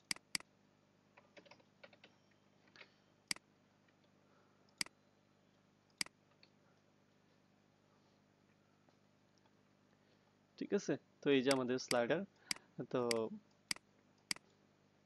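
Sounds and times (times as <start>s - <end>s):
keyboard keystrokes: 0.0s - 0.4s, 13.1s - 13.3s
mouse clicks: 0.0s - 0.5s, 11.5s - 14.4s.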